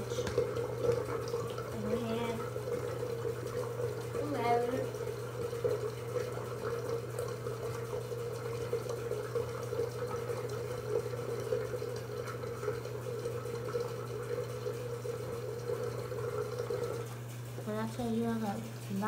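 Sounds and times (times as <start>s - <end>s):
tap running into sink: 0.0s - 14.6s.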